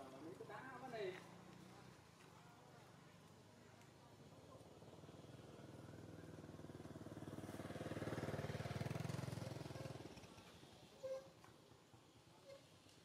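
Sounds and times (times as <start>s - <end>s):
passing vehicle engine: 5.6s - 10.3s.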